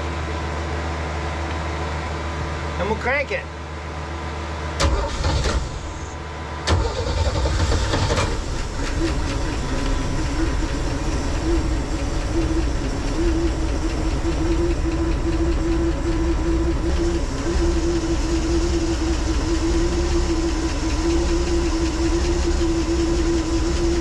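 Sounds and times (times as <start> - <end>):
steady low hum: 0.0 - 24.0
boat engine idling: 5.1 - 24.0.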